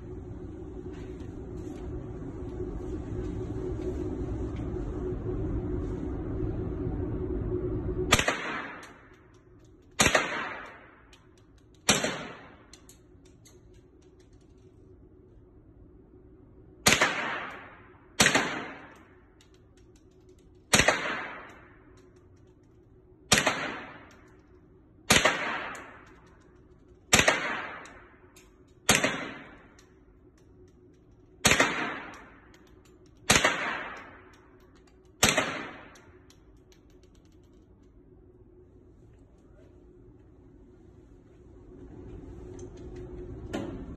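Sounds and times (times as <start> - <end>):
rifle shots echoing indoors: 8.1 - 14.6, 16.8 - 37.9.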